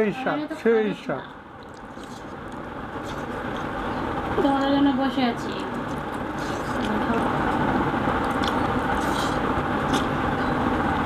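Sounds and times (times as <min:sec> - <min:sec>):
steady rumbling background noise: 0:00.0 - 0:11.0
hands mixing food on plates: 0:01.6 - 0:10.2.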